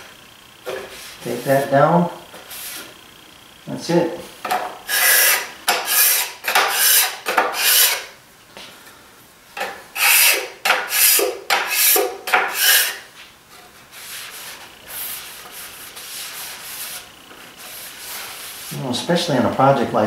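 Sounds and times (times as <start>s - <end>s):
scraper rasping on wood: 4.9s - 8.0s, 10.0s - 13.0s
soft rubbing: 13.2s - 18.9s.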